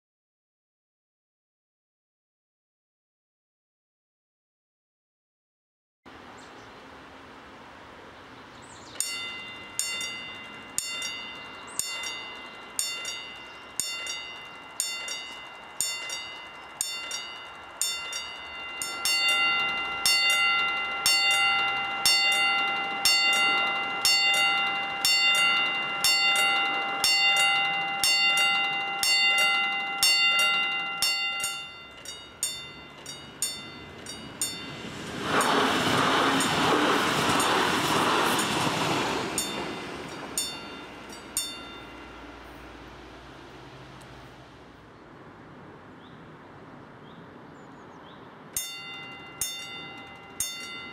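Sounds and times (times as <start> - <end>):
electric train passing: 6.1 - 50.9
level crossing bells ringing: 8.9 - 35.6, 38.4 - 44.0, 48.6 - 50.9.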